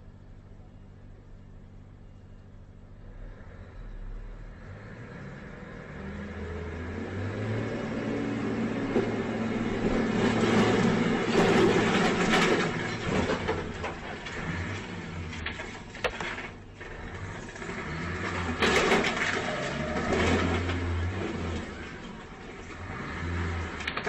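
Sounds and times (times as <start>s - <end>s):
truck diesel engine reversing: 3.0s - 24.0s.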